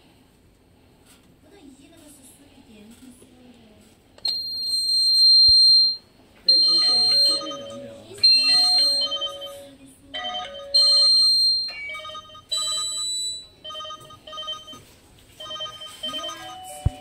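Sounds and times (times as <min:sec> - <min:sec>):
loud held high beep: 0:04.3 - 0:09.6
electronic ringtone melody: 0:05.2 - 0:17.0.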